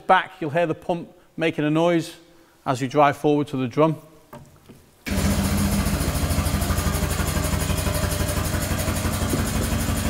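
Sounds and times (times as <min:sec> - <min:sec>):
hydraulic pump rapid pulsing: 0:05.1 - 0:10.0
low hum: 0:05.1 - 0:10.0.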